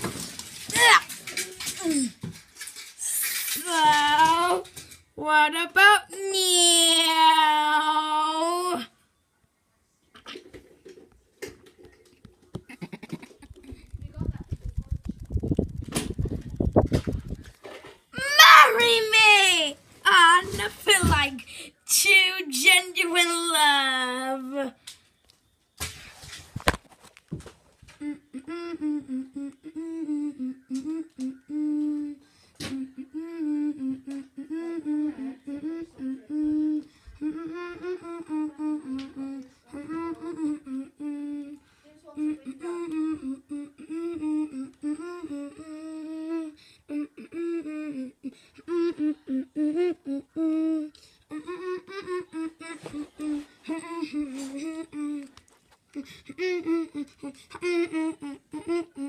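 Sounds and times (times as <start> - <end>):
person humming a tune: 28.0 - 59.0.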